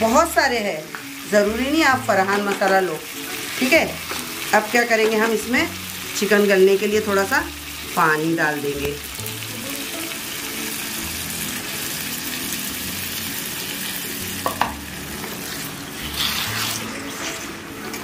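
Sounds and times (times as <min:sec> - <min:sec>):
food sizzling in a pan: 0:00.0 - 0:18.0
spatula stirring: 0:15.2 - 0:18.0.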